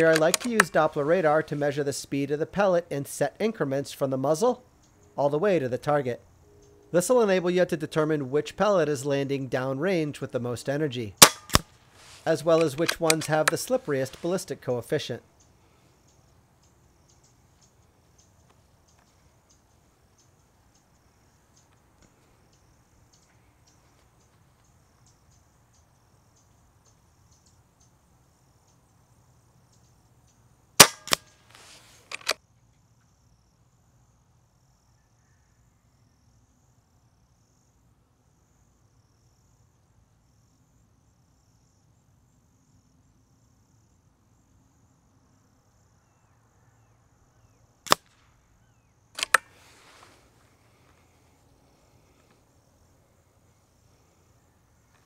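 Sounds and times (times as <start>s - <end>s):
air rifle shot crack: 11.2s - 11.7s, 30.8s - 31.2s, 47.9s - 48.3s.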